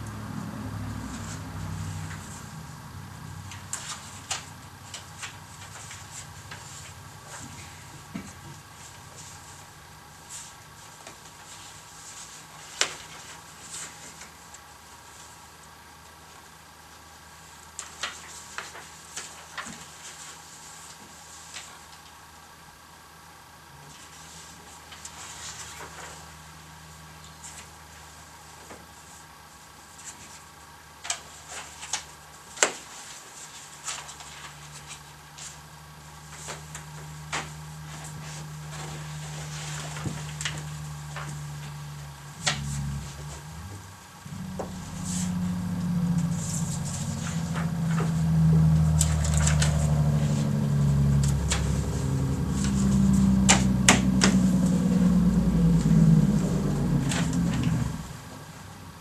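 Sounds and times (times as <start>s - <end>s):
loud low rumble: 41.2s - 58.9s.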